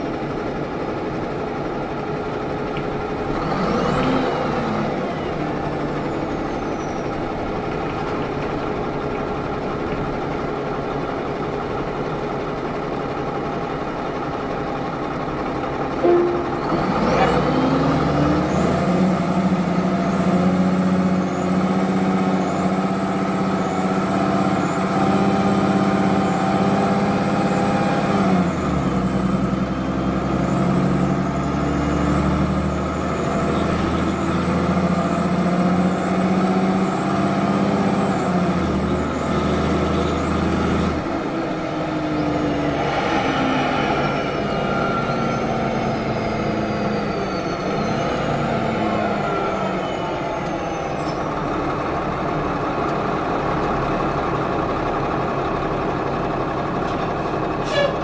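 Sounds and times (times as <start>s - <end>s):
bus diesel engine running: 0.0s - 58.0s
high whistle: 42.3s - 48.1s.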